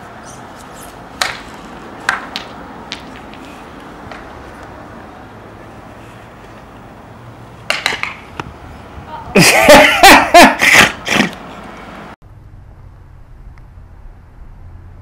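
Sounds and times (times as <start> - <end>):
person vocalizing in bursts: 9.3 - 11.3.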